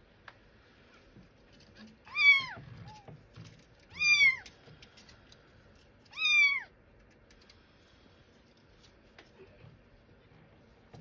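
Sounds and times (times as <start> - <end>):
kitten meowing: 2.1 - 3.1, 3.9 - 4.5, 6.1 - 6.7.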